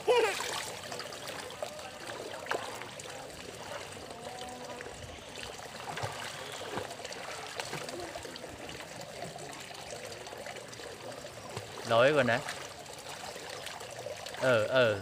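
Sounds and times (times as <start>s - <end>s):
pool water splashing: 0.0s - 15.0s.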